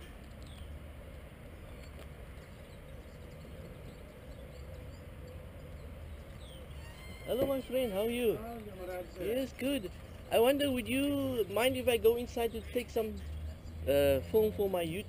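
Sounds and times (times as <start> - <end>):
distant traffic rumble: 0.0 - 15.0
faint bird chirps: 1.5 - 11.7.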